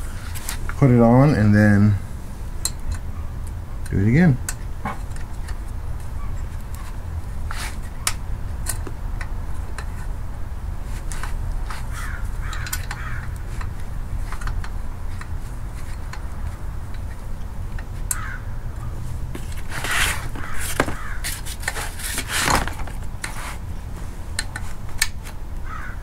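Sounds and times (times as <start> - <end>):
crows cawing: 11.9 - 13.4, 18.1 - 18.6, 20.4 - 21.3, 25.6 - 26.0
metallic clicks of hand tools: 12.4 - 13.7.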